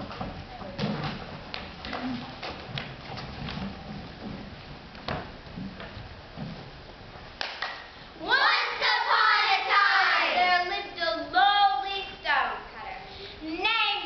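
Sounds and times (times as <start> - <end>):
footsteps thumping on stage: 0.0 - 7.2.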